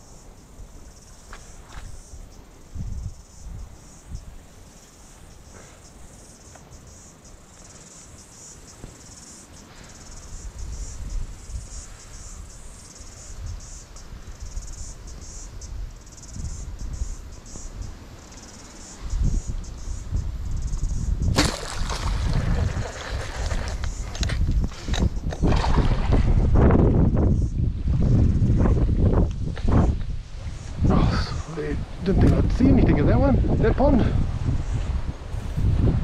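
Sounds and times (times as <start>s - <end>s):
wind buffeting microphone: 0.0s - 4.6s, 13.3s - 36.0s
insects chirring: 0.0s - 36.0s.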